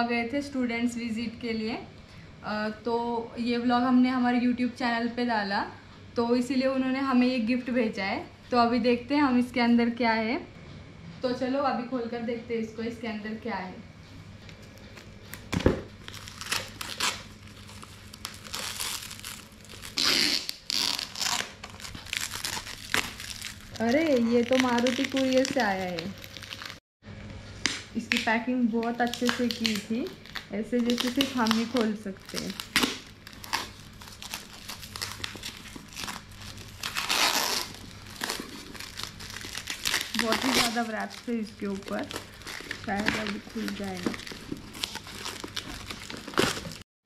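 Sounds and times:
packaging crinkling and tearing: 14.9s - 26.8s, 28.1s - 46.8s
tape ripping: 15.6s - 26.8s, 28.8s - 46.8s.

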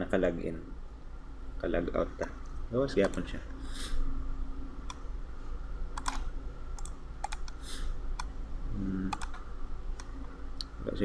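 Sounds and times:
low steady hum: 0.0s - 11.0s
mouse and keyboard clicks: 6.0s - 7.6s, 9.1s - 9.4s.

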